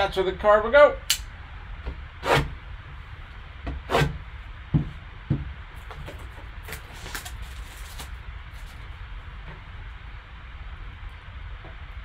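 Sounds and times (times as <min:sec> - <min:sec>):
steady low hum: 0:00.0 - 0:12.0
box knocking on table: 0:04.7 - 0:05.5.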